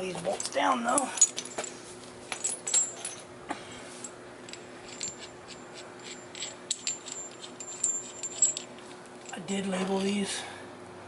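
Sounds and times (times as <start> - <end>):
bolts and nuts clinking: 0.0 - 3.3, 4.4 - 10.2.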